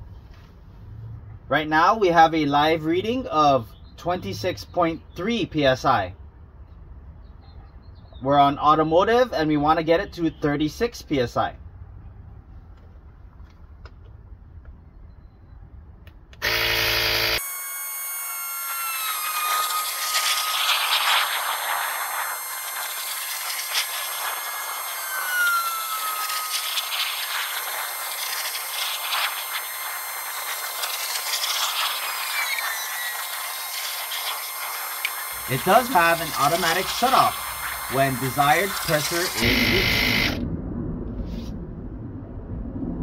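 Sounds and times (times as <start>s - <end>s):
electric air compressor running: 16.4s - 40.4s.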